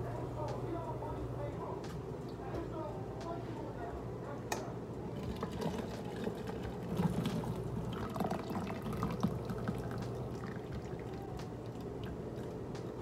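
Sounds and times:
water draining and dripping: 0:05.2 - 0:12.5.

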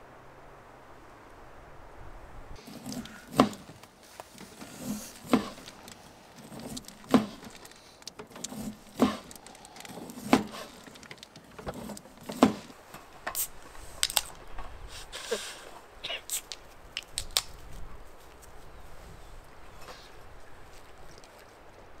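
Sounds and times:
light clicks and rustling: 0:02.6 - 0:14.9, 0:16.2 - 0:18.6, 0:19.4 - 0:21.9
sharp knocks: 0:02.8 - 0:03.8, 0:05.2 - 0:05.9, 0:08.2 - 0:09.4, 0:10.1 - 0:12.7.

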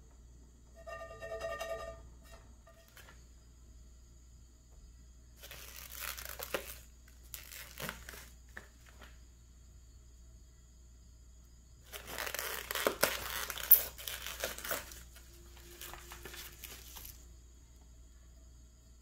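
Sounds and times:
packaging crinkling: 0:05.4 - 0:09.1, 0:11.9 - 0:17.2.

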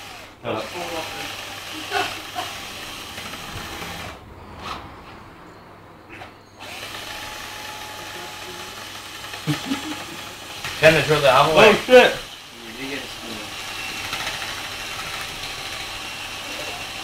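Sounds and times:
power drill whisking in a bowl: 0:00.0 - 0:04.2, 0:06.6 - 0:17.0.

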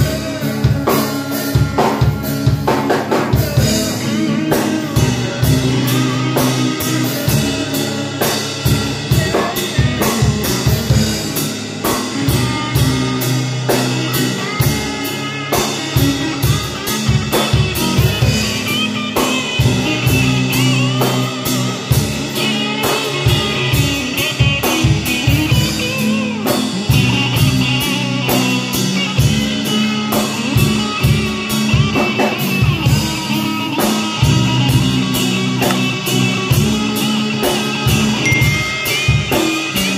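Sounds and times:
drum kit: 0:00.0 - 0:39.9
electric guitar: 0:00.0 - 0:39.9
wavering high melodic line: 0:38.2 - 0:39.9.

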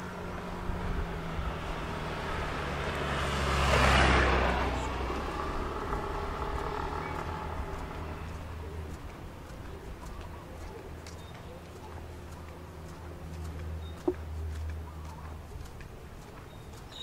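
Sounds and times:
road vehicle passing by: 0:00.0 - 0:17.0.

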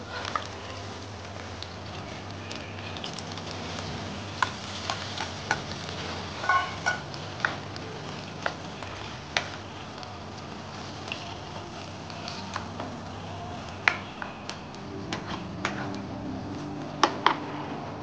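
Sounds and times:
squid sizzling in hot oil: 0:00.0 - 0:14.0
spatula stirring in pan: 0:00.0 - 0:16.0.

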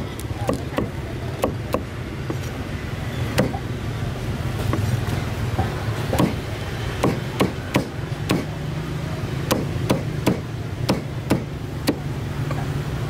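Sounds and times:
cleaver chopping meat and bone: 0:00.4 - 0:02.4, 0:03.3 - 0:03.6, 0:06.0 - 0:08.6, 0:09.4 - 0:12.1.

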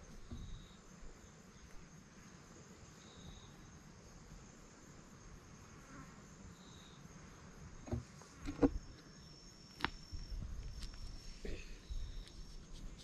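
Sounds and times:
insects trilling: 0:00.0 - 0:13.0
short knocks and thumps: 0:00.2 - 0:00.6, 0:07.8 - 0:08.8.

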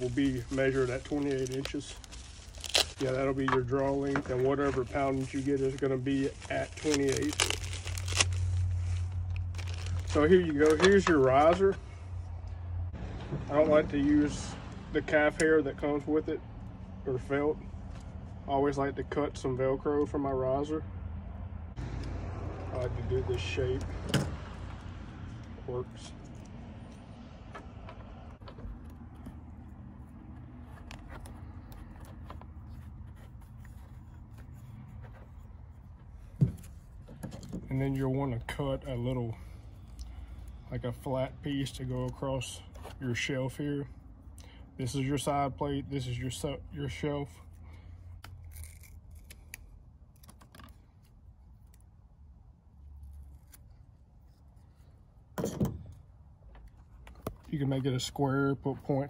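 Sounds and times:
hands rustling velcro: 0:00.0 - 0:11.6.

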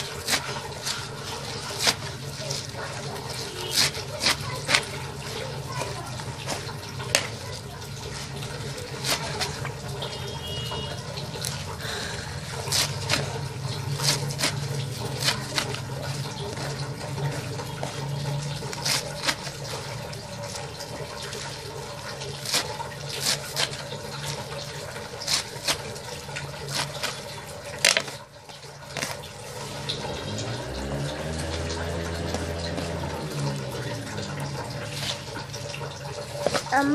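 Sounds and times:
knife chopping on metal tray: 0:00.0 - 0:05.0, 0:12.5 - 0:16.7, 0:22.4 - 0:26.0.

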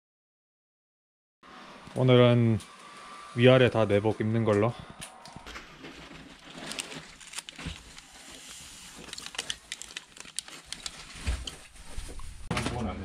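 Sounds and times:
packet crinkling and rustling: 0:05.4 - 0:12.5.

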